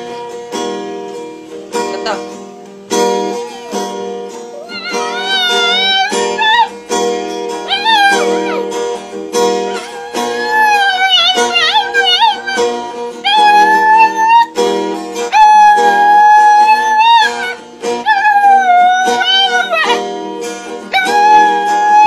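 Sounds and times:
strummed acoustic guitar: 0.0 - 22.0
dog howling: 3.2 - 6.8, 7.6 - 8.8, 9.6 - 14.6, 15.3 - 20.1, 20.9 - 22.0.

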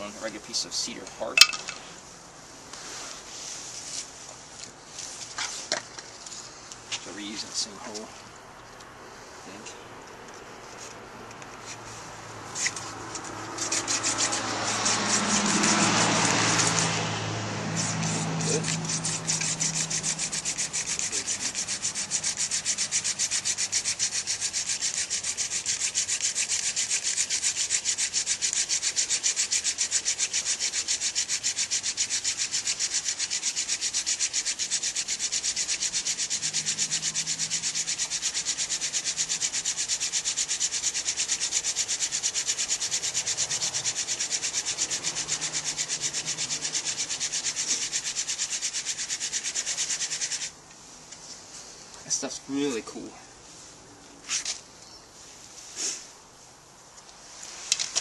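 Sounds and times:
wooden spindle rubbing on board: 12.5 - 17.0, 17.7 - 50.5.

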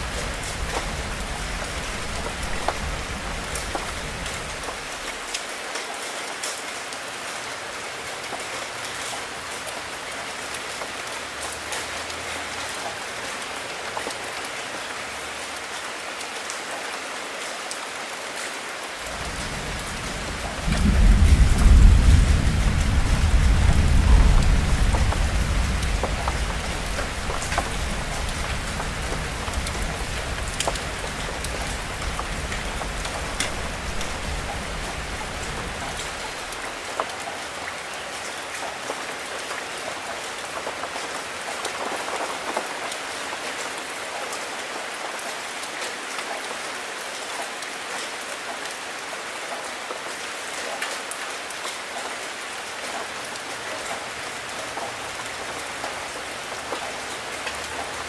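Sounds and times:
deep thunder roll: 0.0 - 4.6, 19.1 - 36.6
steady rain: 0.0 - 58.0.

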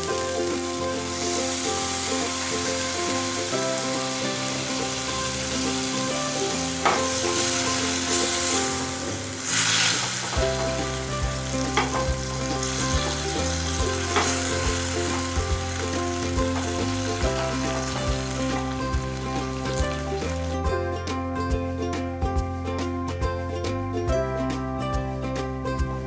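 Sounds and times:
hot oil sizzling: 0.0 - 20.7
background music: 0.0 - 26.0.

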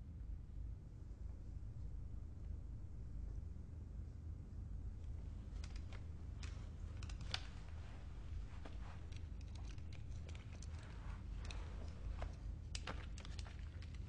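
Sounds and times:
low hum: 0.0 - 14.0
small clicks: 5.0 - 14.0.

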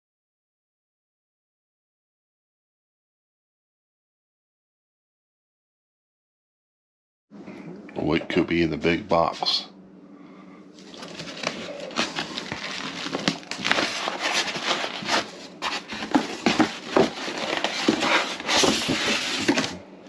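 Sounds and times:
cardboard and styrofoam rustling: 10.8 - 19.8.

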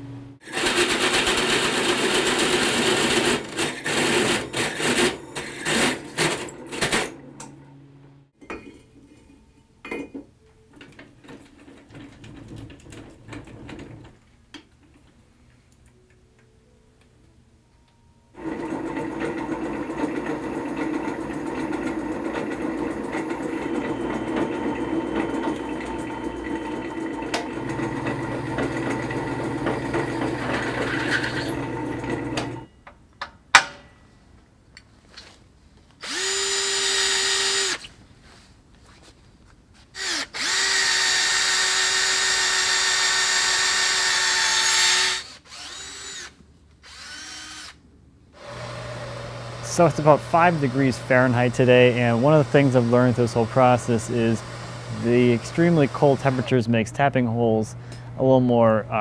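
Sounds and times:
drill press drilling steel plate: 0.4 - 7.5, 18.4 - 32.6, 36.0 - 37.8, 40.0 - 47.8, 48.4 - 56.6
hole saw grinding into steel: 21.8 - 32.6, 40.0 - 47.8, 48.4 - 56.6.

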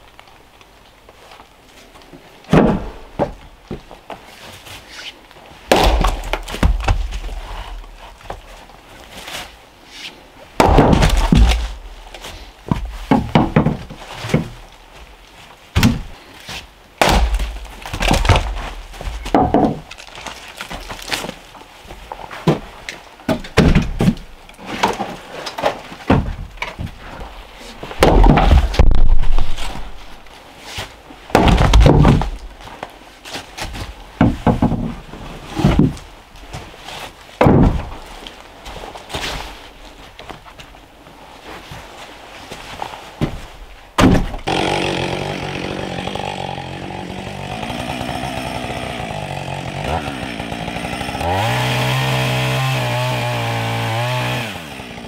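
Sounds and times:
axe splitting firewood: 2.5 - 3.8, 5.7 - 8.5, 10.6 - 14.7, 17.0 - 21.5, 27.9 - 29.9, 31.3 - 32.5, 37.4 - 38.1, 44.0 - 55.0.

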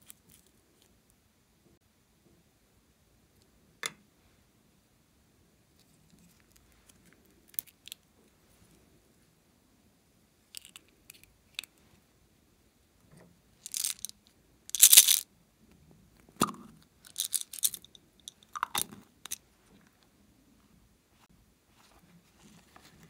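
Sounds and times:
crisp rustles and clicks: 13.7 - 14.1, 17.1 - 17.8
plastic slime containers crinkling: 13.7 - 14.1, 14.7 - 15.2, 17.1 - 17.9.

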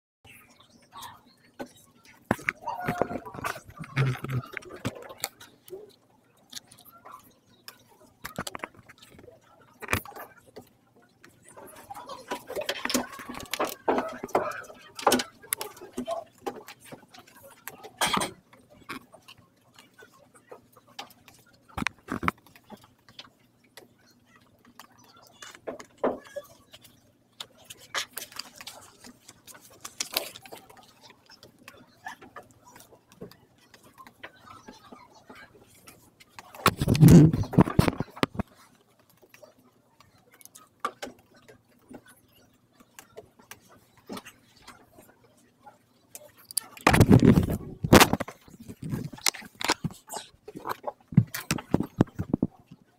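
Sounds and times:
camera handling rustling and knocks: 46.8 - 50.0.

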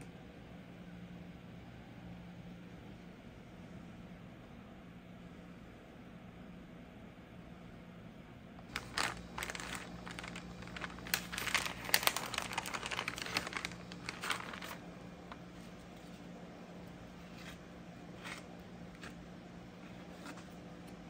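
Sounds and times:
paper crinkling: 8.7 - 16.3, 19.9 - 20.6.

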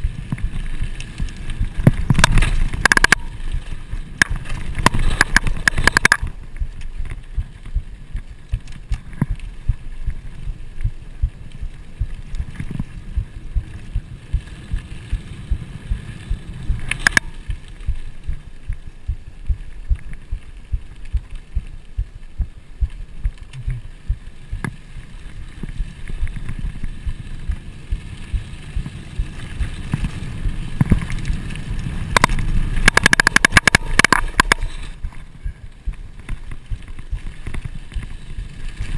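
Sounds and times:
bike rattling and knocking: 0.0 - 7.9, 28.3 - 34.9
wind rumble on microphone: 0.0 - 38.9.

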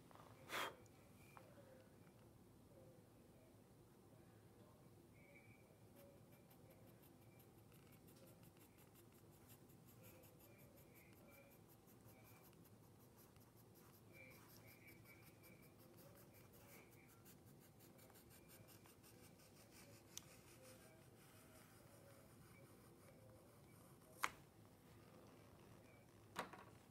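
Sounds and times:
pencil scratching on paper: 6.0 - 24.1.

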